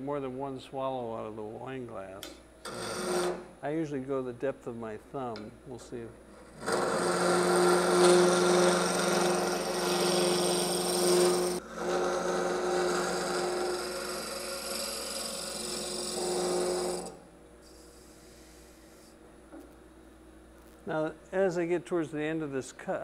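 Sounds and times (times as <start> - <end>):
gouge scraping spinning wood: 2.7 - 3.5, 6.3 - 17.2.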